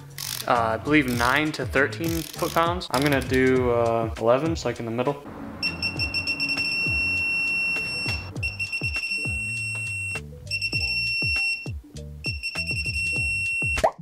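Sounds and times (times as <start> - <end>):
background music with beat: 0.0 - 4.8, 5.6 - 14.0
torque wrench high beep: 5.6 - 13.9.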